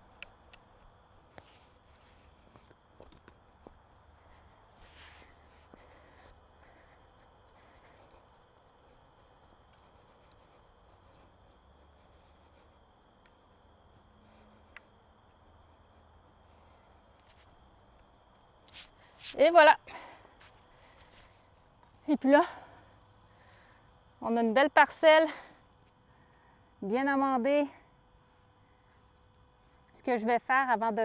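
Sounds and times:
crickets chirping: 0.0 - 31.0
soft rustles: 1.3 - 3.8, 4.8 - 6.8.

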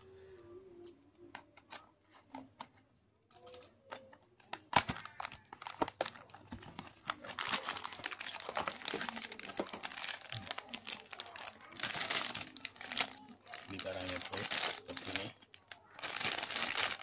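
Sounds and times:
cardboard packaging being opened: 4.7 - 17.0
plastic bag crinkling: 4.7 - 17.0.

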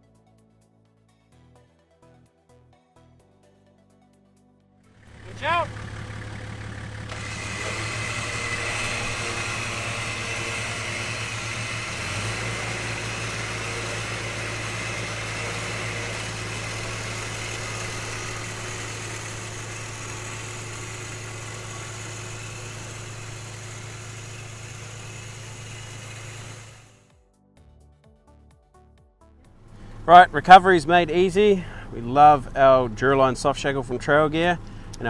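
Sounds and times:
engine idling with hiss: 5.0 - 27.1, 29.6 - 35.0.

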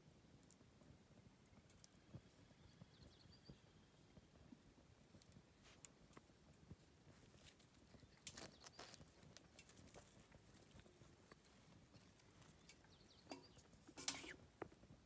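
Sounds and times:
wood fire crackling: 0.0 - 15.0.

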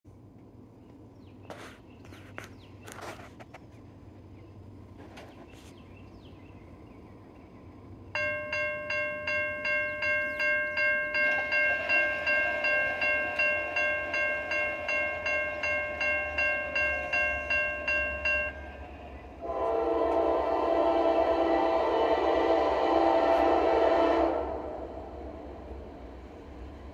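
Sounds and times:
crossing warning bell ringing: 8.2 - 20.4
locomotive air horn: 18.6 - 25.5.

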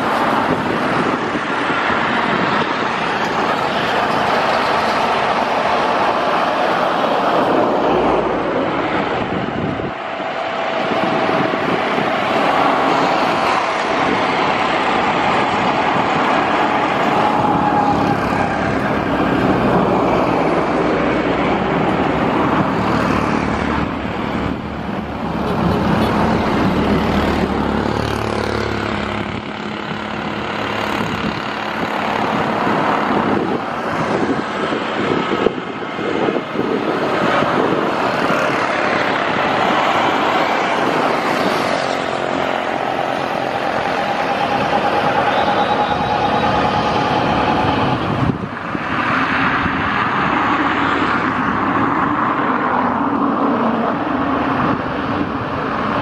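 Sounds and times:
high turbine whine: 0.0 - 56.0
propeller drone: 0.0 - 56.0.

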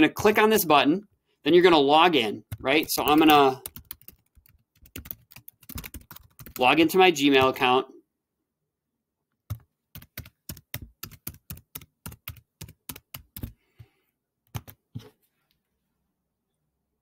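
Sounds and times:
computer keyboard keys clicking: 2.5 - 6.6, 9.5 - 13.6, 14.5 - 14.8.

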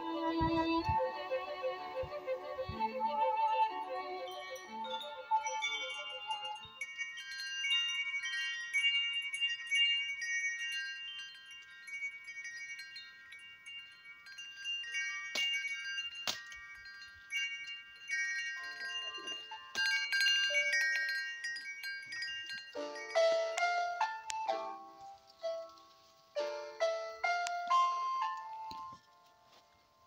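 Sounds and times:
chimes ringing: 3.7 - 30.0.

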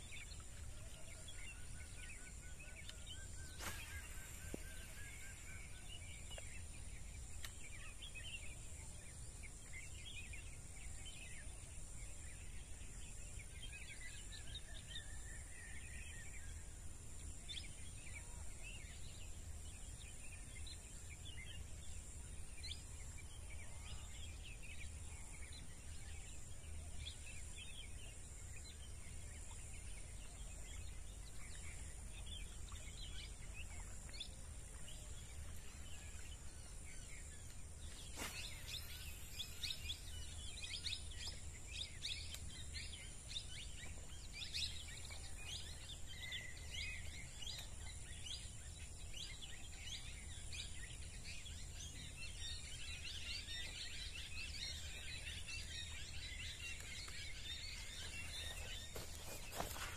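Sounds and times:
birds chirping: 0.0 - 11.0, 23.2 - 59.9.

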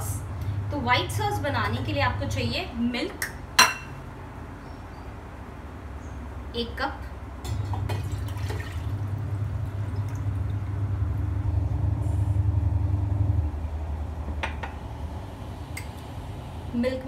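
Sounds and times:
milk pouring into saucepan: 7.5 - 10.8.

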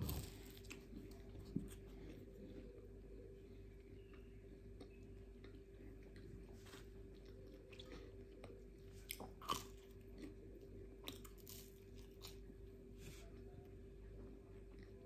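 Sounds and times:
faint steady hum: 0.0 - 15.0
person chewing and smacking: 4.0 - 12.6, 14.6 - 15.0.

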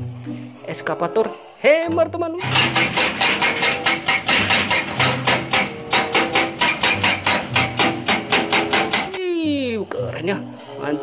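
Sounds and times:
hydraulic breaker hammering rock: 2.4 - 9.2.

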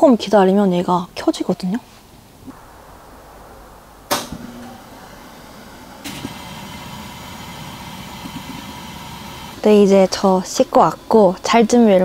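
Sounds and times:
fan heater whirring: 2.6 - 12.0.

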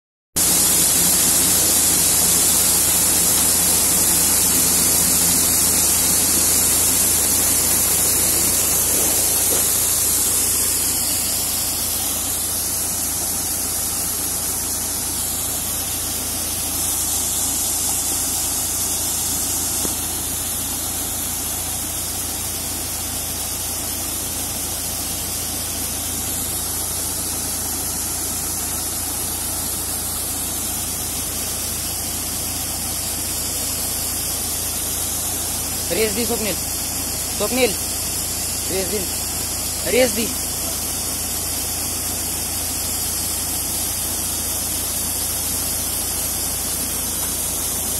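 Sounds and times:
combine harvester running: 0.4 - 47.9.

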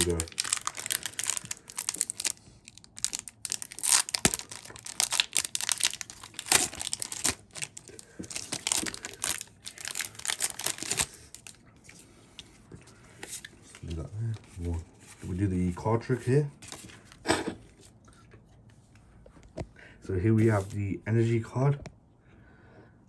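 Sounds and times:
foil wrapper crinkling and tearing: 0.0 - 11.6.

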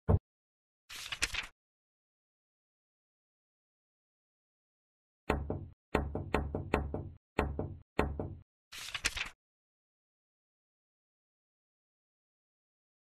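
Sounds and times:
hammer knocking nails: 5.3 - 8.4.

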